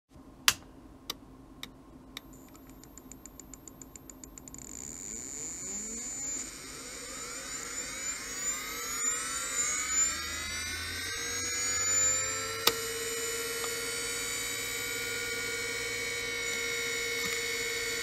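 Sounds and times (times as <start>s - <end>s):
hard drive clicks: 0.5s - 4.7s
spindle motor whine rising: 2.2s - 18.0s.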